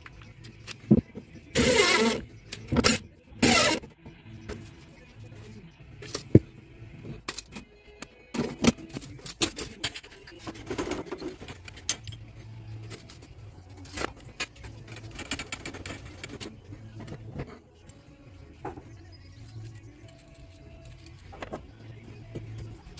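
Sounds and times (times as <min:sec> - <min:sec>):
tools and copper pipe clinking: 0:08.9 - 0:13.2.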